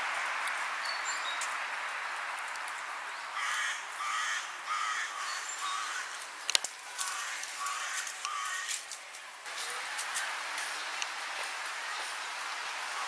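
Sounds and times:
crow cawing: 3.4s - 6.2s, 6.9s - 8.8s.

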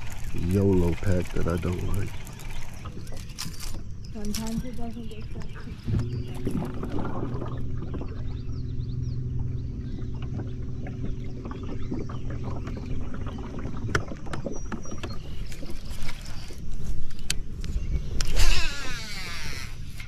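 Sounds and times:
electric motor humming: 18.2s - 20.0s.

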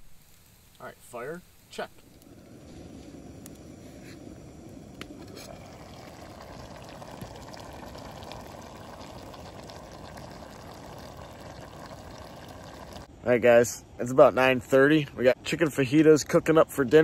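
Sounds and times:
small pops: 4.9s - 5.5s.

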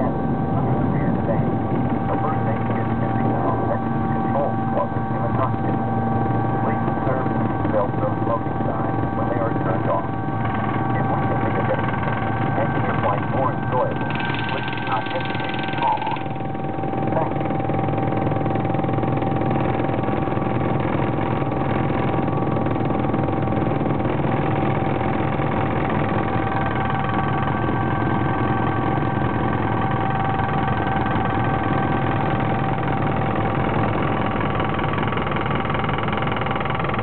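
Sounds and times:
high whining tones: 0.0s - 23.2s
helicopter engines and rotor: 0.0s - 37.0s.

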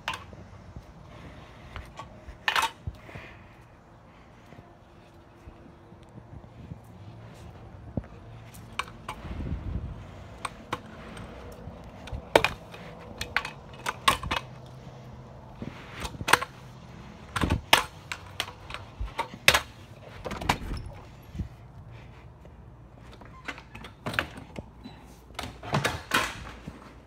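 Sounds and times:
kick scooter clattering on concrete: 6.0s - 27.0s.

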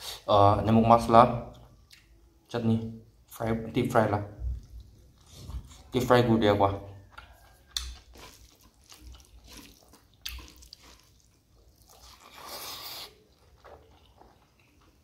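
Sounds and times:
chewing with mouth clicks: 7.0s - 15.0s.

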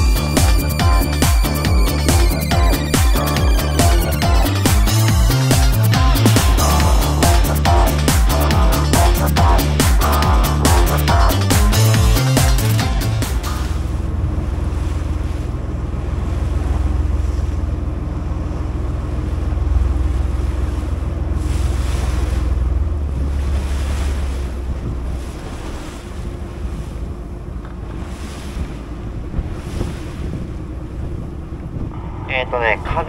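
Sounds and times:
outboard engine running: 0.0s - 33.0s
water rushing past hull: 0.0s - 33.0s
wind buffeting microphone: 13.8s - 33.0s.

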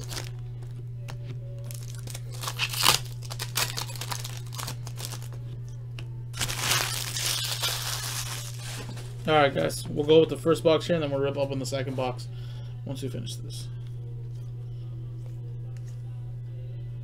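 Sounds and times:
foil wrapper tearing and crinkling: 0.0s - 0.3s, 1.6s - 5.4s, 6.4s - 9.2s
steady low hum: 0.0s - 17.0s.

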